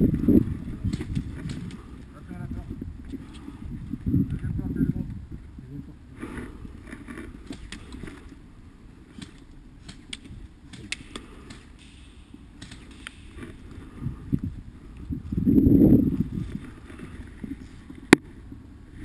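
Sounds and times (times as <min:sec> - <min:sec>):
low steady rumble: 0:00.0 - 0:19.0
slow footsteps on pavement: 0:06.1 - 0:19.0.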